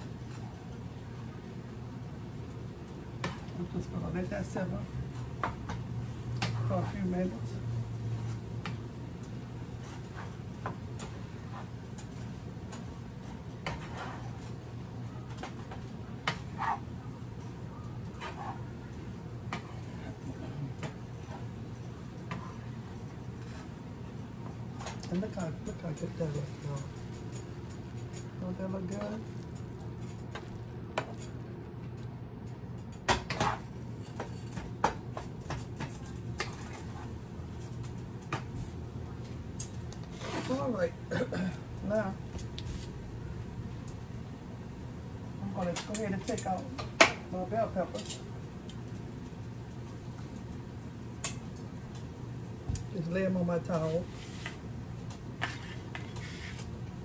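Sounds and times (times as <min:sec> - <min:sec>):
steady low hum: 0:00.0 - 0:57.0
spatula scraping a skillet: 0:13.3 - 0:14.6, 0:16.3 - 0:16.9, 0:18.2 - 0:18.7, 0:40.0 - 0:40.8, 0:55.4 - 0:56.7.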